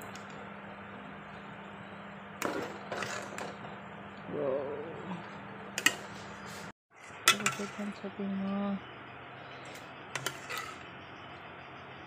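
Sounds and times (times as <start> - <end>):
metal ladle scraping a pot: 10.2 - 10.8.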